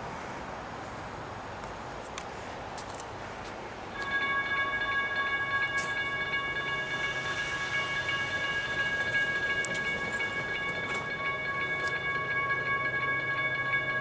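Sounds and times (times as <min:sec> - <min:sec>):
low locomotive rumble: 0:03.4 - 0:14.0.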